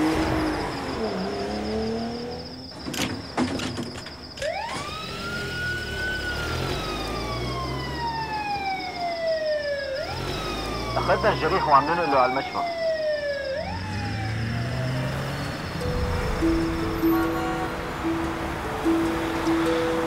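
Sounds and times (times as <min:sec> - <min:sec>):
ambulance siren wailing: 0:04.4 - 0:20.0
car engine revving: 0:05.0 - 0:08.6, 0:10.0 - 0:11.7, 0:13.6 - 0:20.0.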